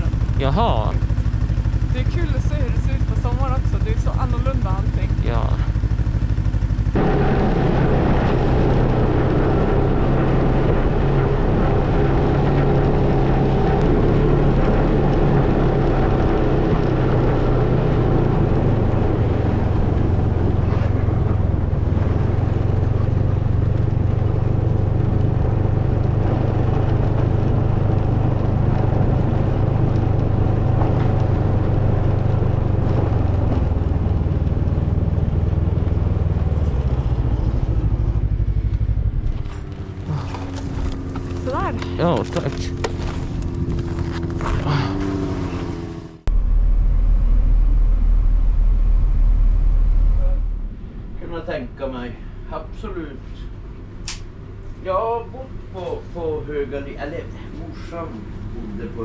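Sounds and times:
snowmobile engine running: 0.0 - 51.1.

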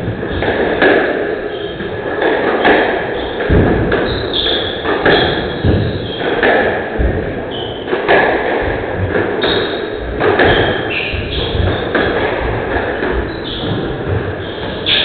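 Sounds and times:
squash ball hitting rackets and walls: 0.0 - 15.0
shoe squeaks on court floor: 1.5 - 1.8, 3.2 - 3.4, 4.0 - 6.4, 7.5 - 7.9, 9.4 - 12.3, 12.9 - 15.0.

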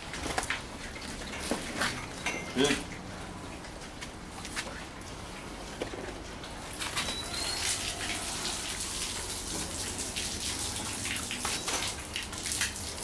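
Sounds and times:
hose water splashing on concrete: 3.9 - 13.0.

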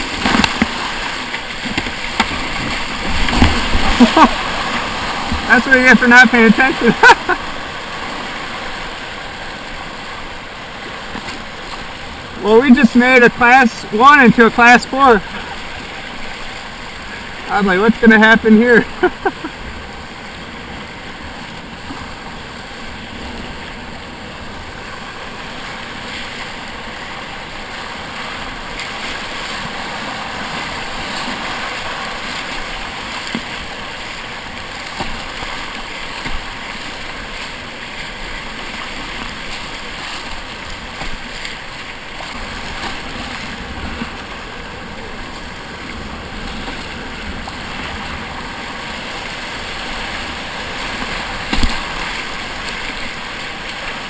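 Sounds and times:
paddle splashes: 0.0 - 54.0
rushing whitewater roar: 0.0 - 54.0.

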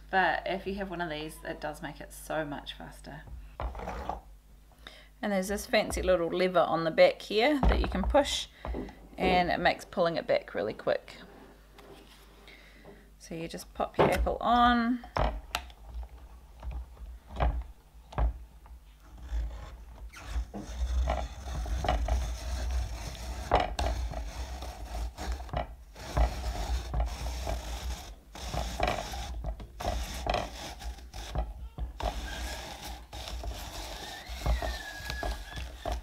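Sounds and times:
apple peeler scraping and rasping: 19.0 - 36.0.

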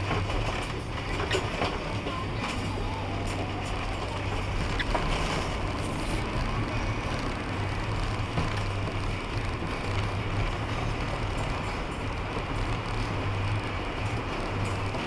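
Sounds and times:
truck engine hum: 0.0 - 15.0
tyre and road noise: 0.0 - 15.0.

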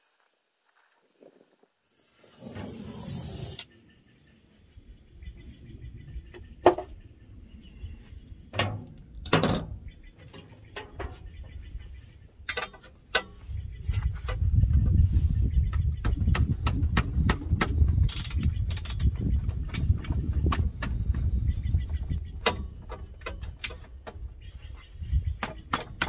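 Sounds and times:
gas torch hissing: 1.1 - 3.7
socket wrench clicking and scraping: 17.6 - 19.2.

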